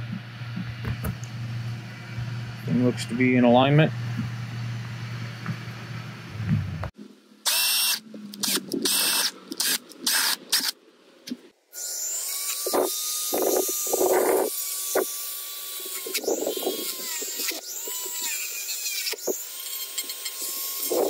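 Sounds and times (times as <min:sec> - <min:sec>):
rotary tool grinding plastic: 0:11.8 - 0:21.0.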